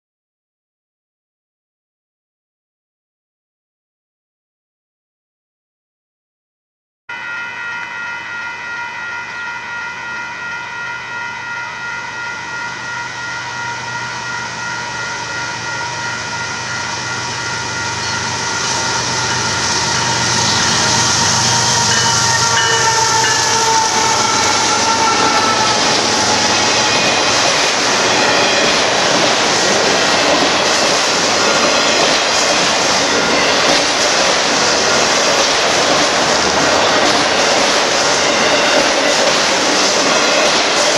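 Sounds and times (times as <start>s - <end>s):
diesel locomotive: 7.1s - 40.9s
railroad crossing bell ringing: 7.1s - 40.9s
train wheels clattering on rail: 17.8s - 40.9s.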